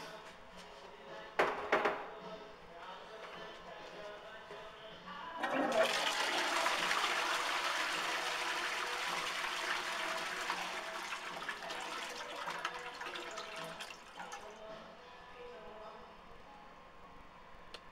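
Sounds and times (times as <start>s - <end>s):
toilet flushing: 5.4s - 14.6s.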